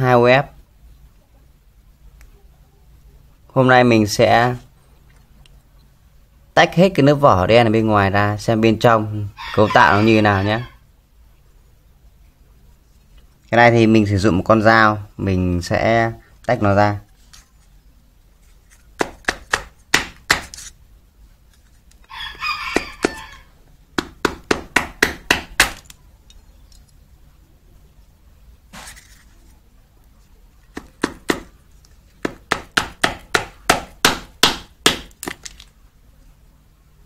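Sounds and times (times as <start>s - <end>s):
knife tapping plastic casing: 18.8s - 20.7s, 30.7s - 35.7s.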